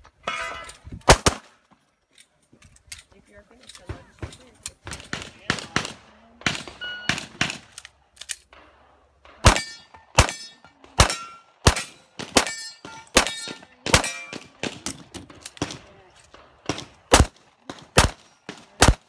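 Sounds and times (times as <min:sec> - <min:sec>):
pistol shots: 0:01.1 - 0:01.5, 0:09.4 - 0:19.0
steel targets ringing: 0:09.5 - 0:14.5.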